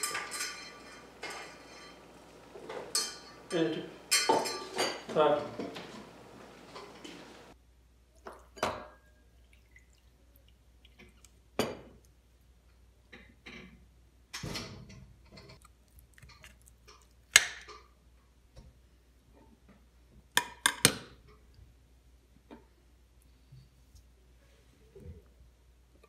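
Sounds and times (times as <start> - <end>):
glass and dishes clinking: 0.0 - 7.6
water pouring onto plate: 9.3 - 11.4.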